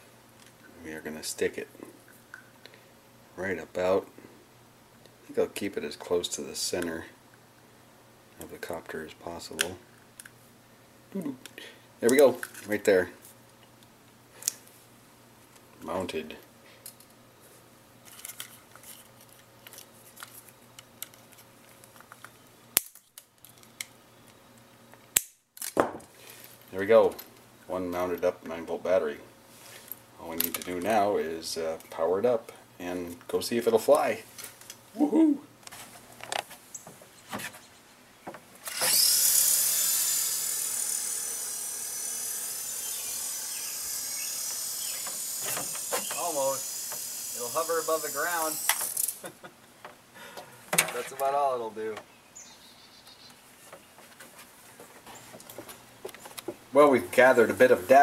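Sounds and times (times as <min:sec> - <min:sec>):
helicopter motors whining: 0:38.6 - 0:49.3
side cutters snapping: 0:38.6 - 0:49.3.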